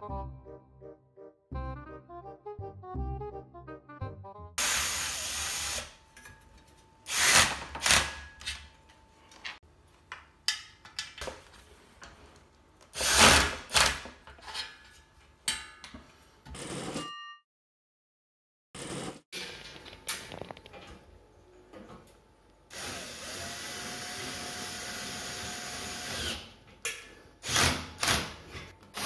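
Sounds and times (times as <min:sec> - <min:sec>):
cordless drill driving screws: 0:07.1 - 0:08.1.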